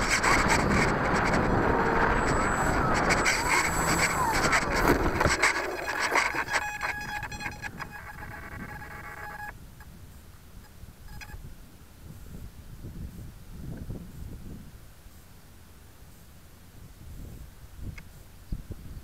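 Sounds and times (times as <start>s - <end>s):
model airplane motor winding down: 0.0s - 9.5s.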